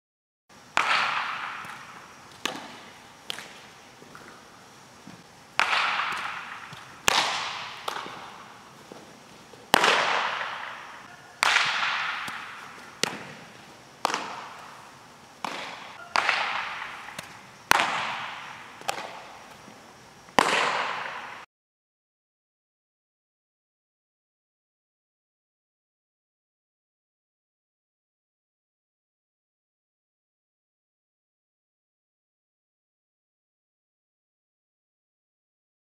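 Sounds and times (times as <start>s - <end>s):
baseball impact cracks echoing: 0.7s - 21.5s.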